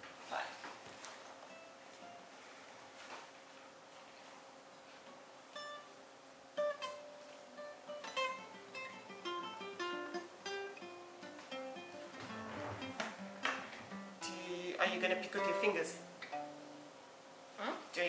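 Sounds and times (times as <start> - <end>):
fingerpicked acoustic guitar: 5.0 - 17.0.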